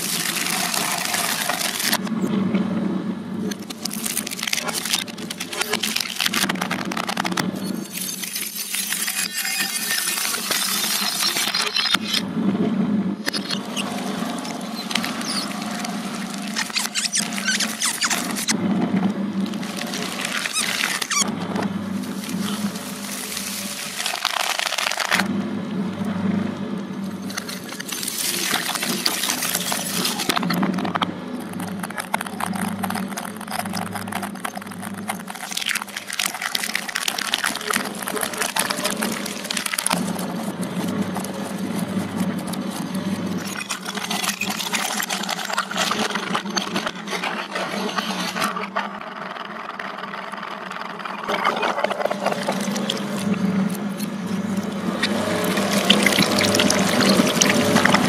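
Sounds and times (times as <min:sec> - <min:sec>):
plastic balls cracking: 0:00.0 - 0:02.1, 0:03.5 - 0:12.2, 0:13.3 - 0:18.6, 0:19.4 - 0:25.3, 0:27.2 - 0:58.0
sharp clicks of candy shredding: 0:00.0 - 0:02.1, 0:03.5 - 0:12.2, 0:13.3 - 0:18.6, 0:19.4 - 0:25.3, 0:27.2 - 0:53.9, 0:54.6 - 0:58.0
shredder motor hum: 0:00.0 - 0:58.0
cutters crunching foam: 0:03.5 - 0:12.2, 0:13.3 - 0:18.6, 0:19.4 - 0:25.3, 0:27.1 - 0:48.6.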